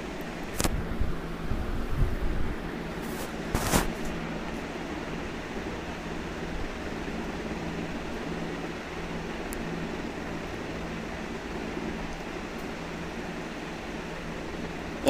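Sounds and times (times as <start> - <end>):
low hum and hiss: 0.0 - 15.0.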